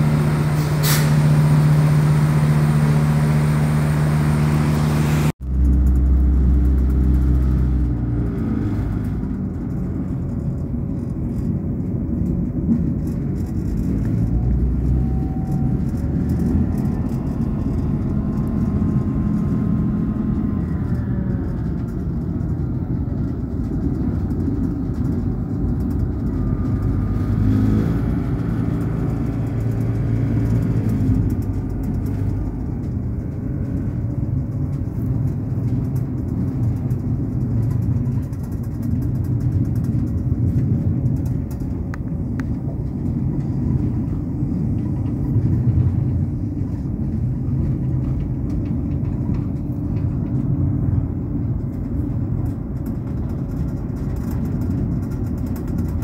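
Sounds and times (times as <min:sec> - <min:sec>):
train running rumble: 0:00.0 - 0:56.0.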